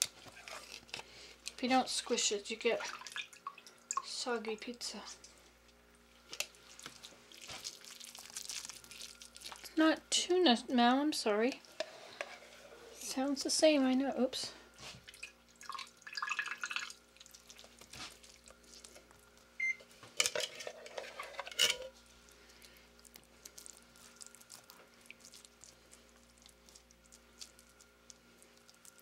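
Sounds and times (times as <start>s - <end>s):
faint steady hum: 0.0s - 29.0s.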